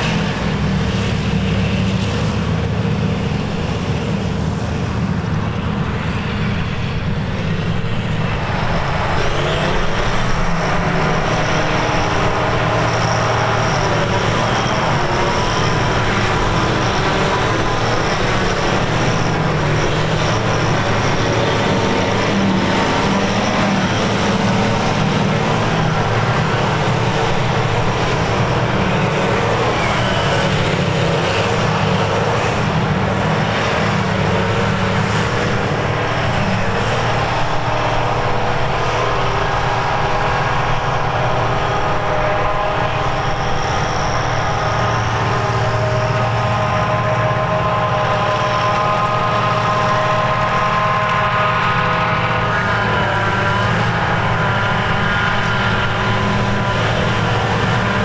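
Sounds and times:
heavy engine drone: 0.0s - 58.0s
tractor running: 0.0s - 58.0s.

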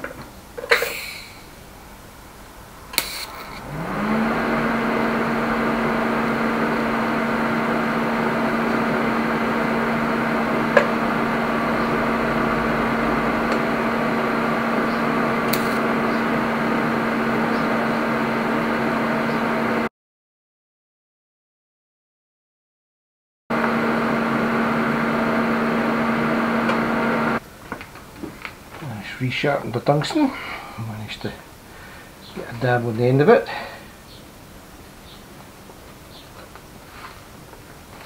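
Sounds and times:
welding arc buzzing: 2.9s - 18.9s
welder clicks: 15.4s - 15.8s.

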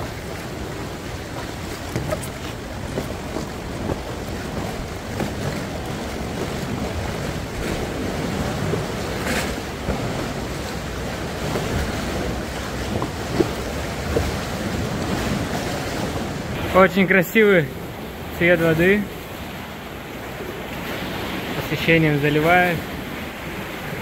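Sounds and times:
wind buffeting microphone: 0.0s - 16.7s
sea waves washing: 0.0s - 24.0s.

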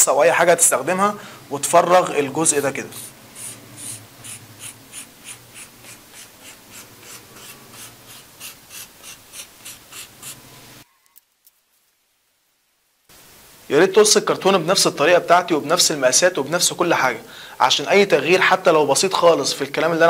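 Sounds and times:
marker scratching on cardboard: 2.5s - 10.6s.

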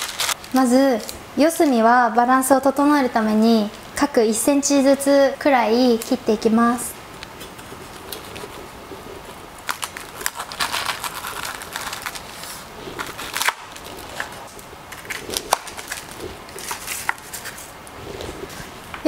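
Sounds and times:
knife crunching through crisp slab: 9.6s - 17.8s.

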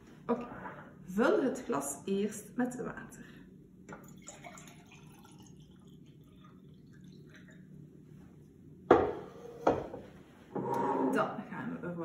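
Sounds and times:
water trickling into glass: 3.9s - 7.8s
jug knocking on countertop: 8.9s - 10.0s.

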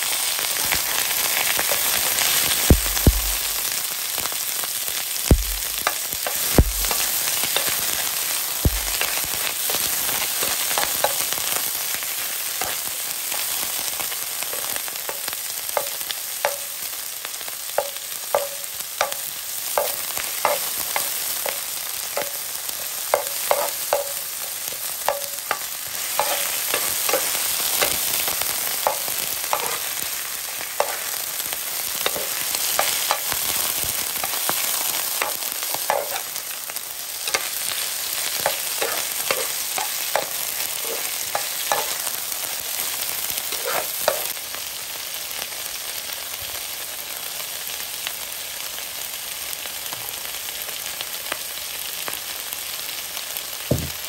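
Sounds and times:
greens sizzling in a frying pan: 0.0s - 54.0s
low thumps: 5.3s - 5.8s
metal spatula scraping a pan: 23.2s - 24.2s, 25.1s - 28.2s, 28.8s - 30.0s, 30.8s - 31.2s, 32.0s - 33.6s, 34.2s - 36.3s, 37.3s - 42.1s, 43.5s - 44.3s.

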